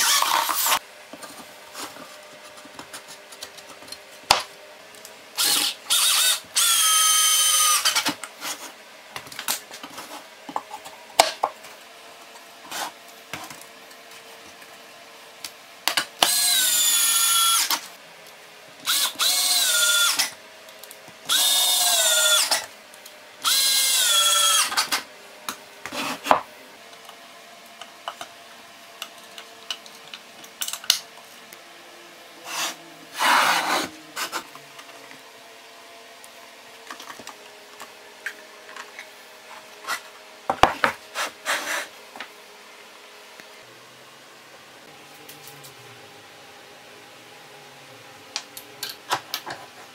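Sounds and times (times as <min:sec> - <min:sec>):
drill driving screws: 0:00.0 - 0:00.8, 0:05.4 - 0:08.2, 0:16.2 - 0:17.8, 0:18.8 - 0:20.4, 0:21.3 - 0:22.7, 0:23.4 - 0:25.0.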